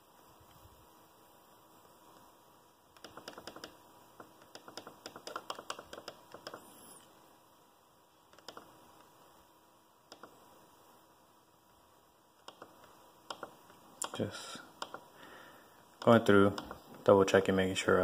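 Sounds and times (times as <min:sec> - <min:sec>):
laptop keyboard typing: 0:03.0 - 0:07.0, 0:08.3 - 0:08.8, 0:10.1 - 0:10.4, 0:12.4 - 0:15.1.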